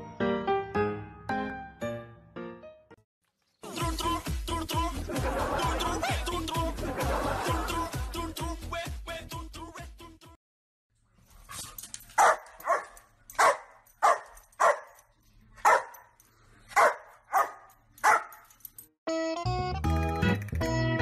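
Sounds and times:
dog barking sharply: 12.2 - 15.0, 15.6 - 16.0, 16.7 - 18.4.

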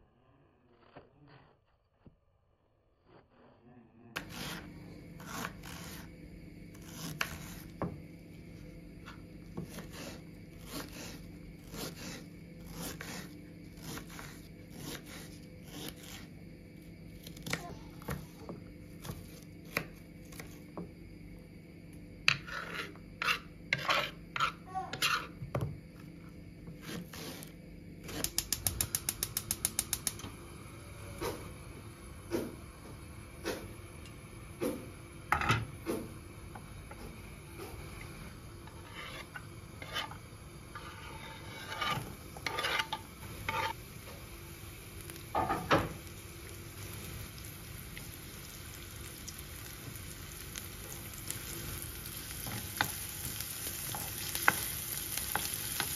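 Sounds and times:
wooden spoon scraping metal pan: 22.3 - 25.4, 38.6 - 43.8.

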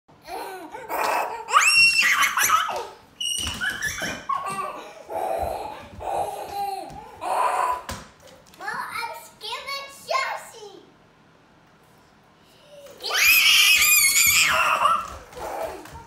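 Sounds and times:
young child squealing: 0.9 - 4.3, 13.0 - 16.0.

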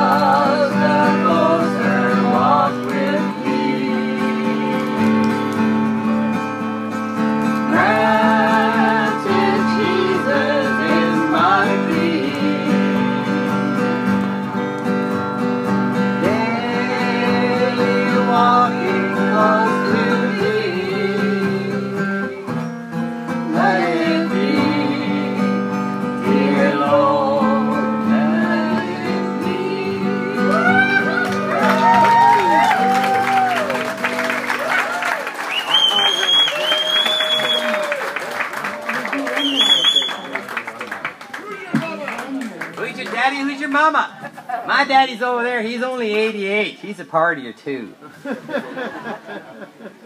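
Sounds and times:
person singing: 0.0 - 5.3, 7.7 - 13.8, 16.2 - 22.4, 23.5 - 25.6, 26.2 - 33.7
acoustic guitar chords: 0.0 - 34.8.

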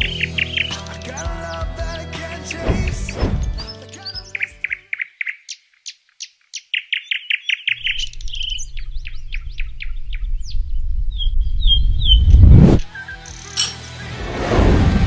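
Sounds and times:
birds chirping and trilling: 0.0 - 14.0
low rumble: 2.6 - 3.6, 9.9 - 12.8.

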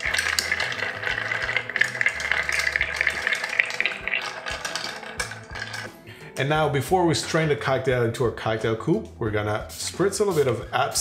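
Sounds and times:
ice clinking in mixing glass: 0.0 - 6.0.

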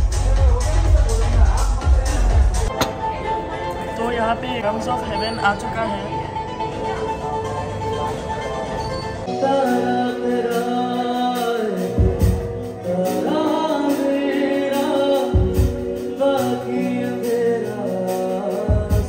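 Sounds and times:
man singing: 0.0 - 2.8, 9.3 - 19.0
live band playing: 4.8 - 19.0.

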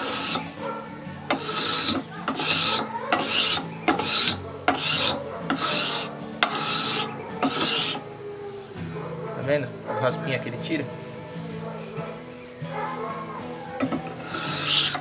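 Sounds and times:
scraper rasping on wood: 0.0 - 0.7, 1.3 - 8.0, 13.8 - 15.0.

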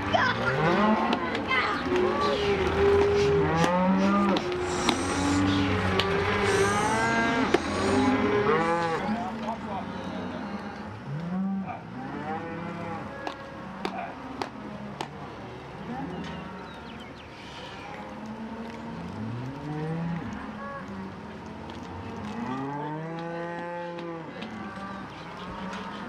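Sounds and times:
cattle bawling: 0.0 - 14.2.

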